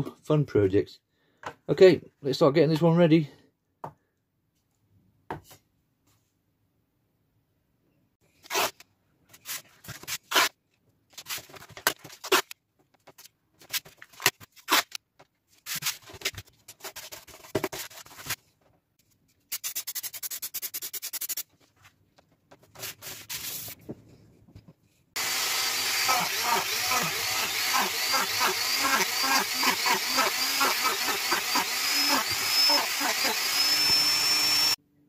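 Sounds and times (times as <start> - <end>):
tape tearing and rubbing: 8.4 - 18.4, 19.5 - 21.6, 22.7 - 23.8
rotary tool running: 25.2 - 34.8.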